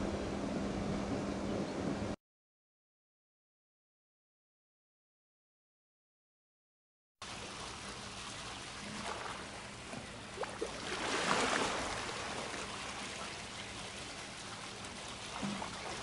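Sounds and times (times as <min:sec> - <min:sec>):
pool water trickling and lapping: 0:07.2 - 0:16.0
swimmer splashing: 0:07.2 - 0:16.0.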